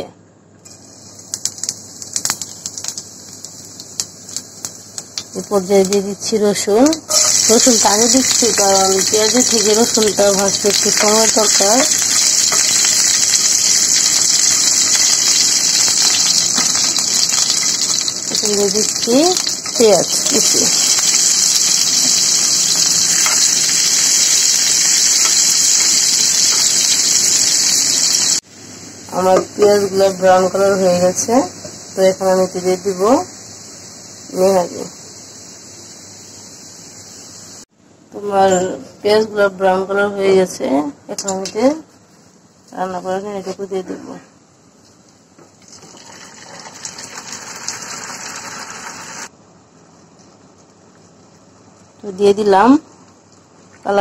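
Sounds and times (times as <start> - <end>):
onions sizzling in hot oil: 0.7 - 28.5, 29.1 - 37.7, 45.6 - 49.3
faint hiss: 6.8 - 37.8.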